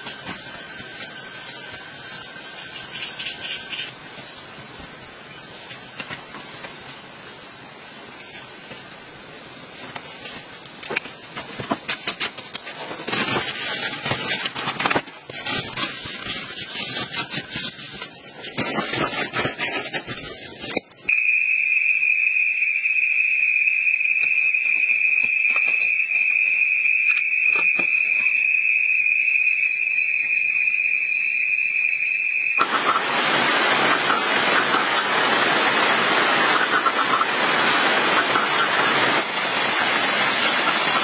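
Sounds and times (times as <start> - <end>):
night insects droning: 0.0 - 41.0
higher chirping tone: 21.1 - 32.6.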